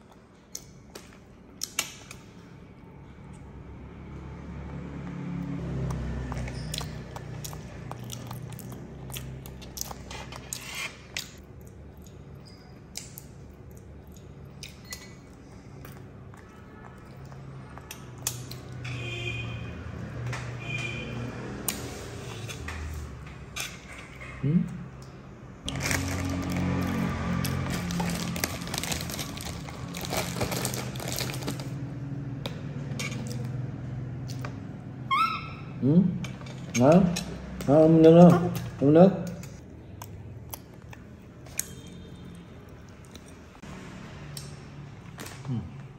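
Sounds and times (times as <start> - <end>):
chewing: 5.7 - 18.8, 36.3 - 43.6
crinkling and clicks from eating: 27.6 - 31.8.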